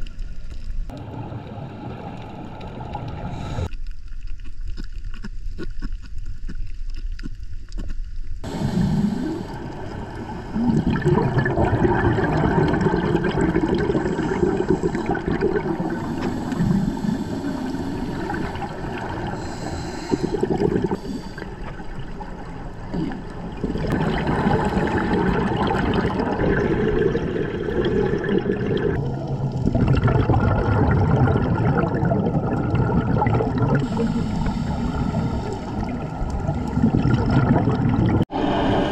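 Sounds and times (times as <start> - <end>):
underwater exhalation bubbles: 8.5 - 22.2, 22.8 - 38.3.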